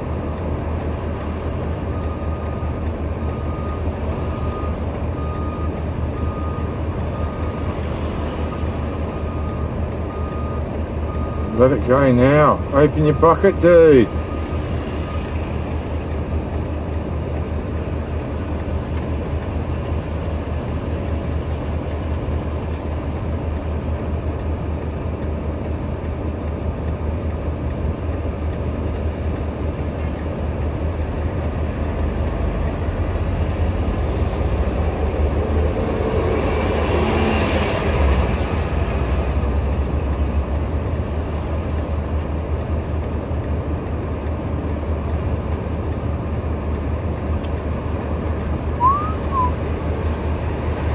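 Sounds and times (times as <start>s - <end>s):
heavy vehicle engines rumbling: 0.0s - 50.9s.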